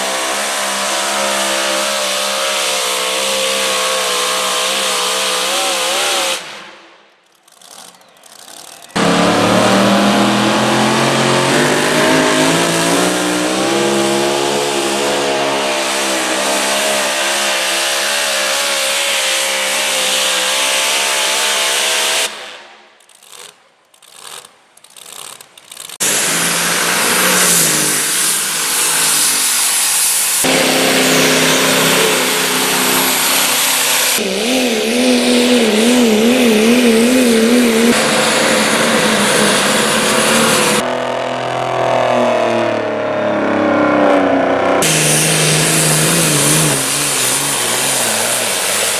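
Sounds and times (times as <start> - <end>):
tractor engines at full throttle: 0.0 - 48.9.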